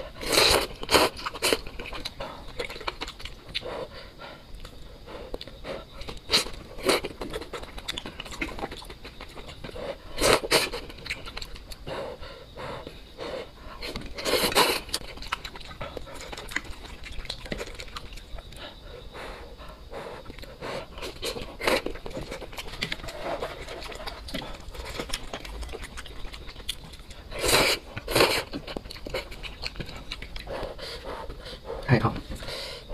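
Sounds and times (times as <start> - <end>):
wet chewing and mouth clicks: 0.0 - 32.7
quick panting breaths: 3.6 - 6.6, 9.6 - 10.8, 11.8 - 14.9, 18.5 - 21.8, 30.3 - 32.9.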